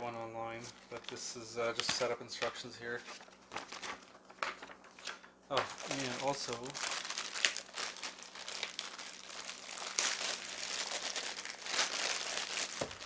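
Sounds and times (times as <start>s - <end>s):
plastic bag crinkling: 3.1s - 13.0s.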